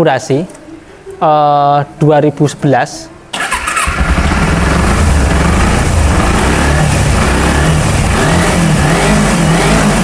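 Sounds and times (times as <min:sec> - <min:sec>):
motorcycle engine running: 0:03.4 - 0:10.0.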